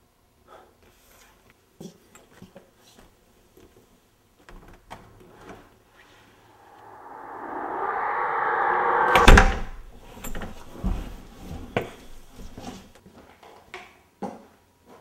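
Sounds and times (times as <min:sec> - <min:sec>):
rising swell of noise: 0:06.4 - 0:09.8.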